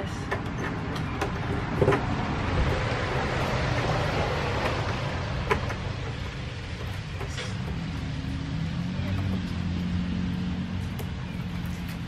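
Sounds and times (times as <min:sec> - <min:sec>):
motor vehicle rumbling: 0:00.0 - 0:12.0.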